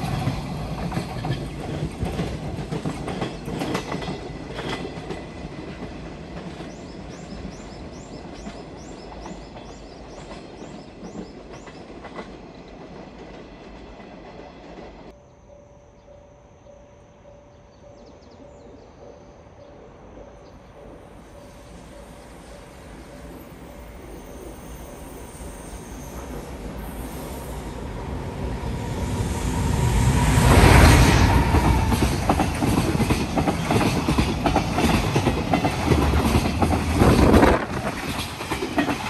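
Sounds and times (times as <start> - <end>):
freight train wagons clattering: 0.0 - 15.1, 31.4 - 39.0
approaching electric train: 0.0 - 39.0.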